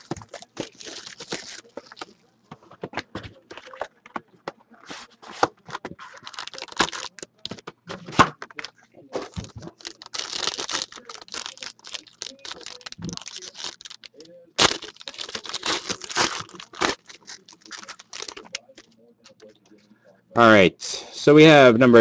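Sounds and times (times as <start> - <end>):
plastic wrapping crinkling and tearing: 0.0 - 2.2, 4.9 - 19.4
cardboard scraping: 4.8 - 7.1.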